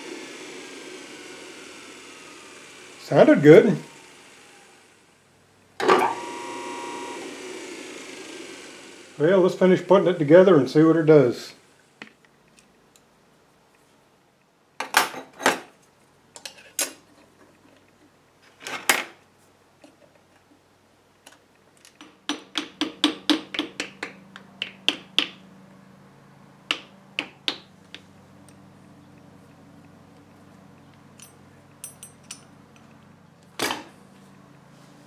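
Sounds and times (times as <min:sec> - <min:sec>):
small metal clicks and knocks: 0:30.8 - 0:33.0.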